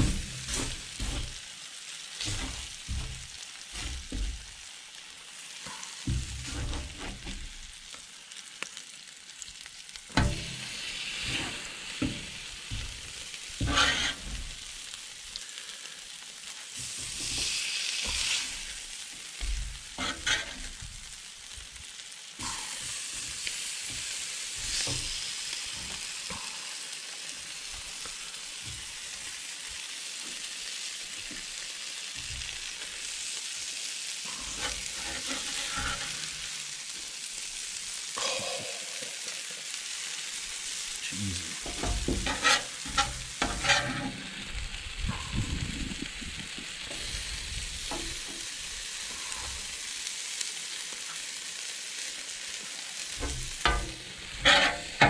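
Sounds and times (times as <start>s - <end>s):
meat and peppers sizzling on griddle: 0.0s - 55.0s
metal spatula scraping steel plate: 13.6s - 14.6s, 20.0s - 20.8s, 34.4s - 36.4s, 41.6s - 44.3s, 53.2s - 55.0s.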